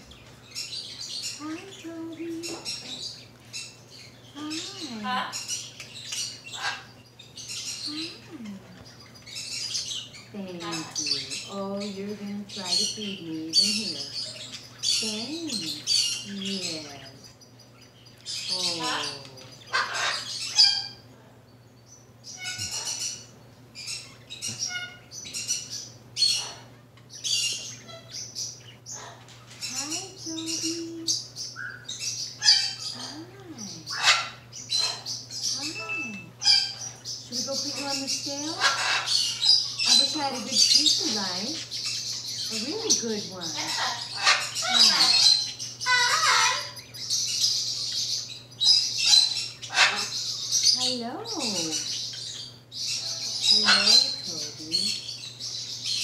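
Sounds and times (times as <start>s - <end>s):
macaw squawking: 18.5s - 21.0s, 22.3s - 28.3s, 28.9s - 55.2s.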